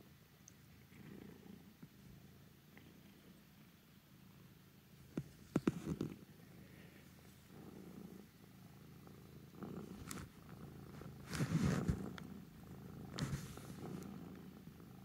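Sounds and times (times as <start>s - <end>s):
cat purring: 0.4s - 15.0s
rustling against phone: 5.2s - 6.2s, 9.9s - 12.2s, 13.1s - 14.0s.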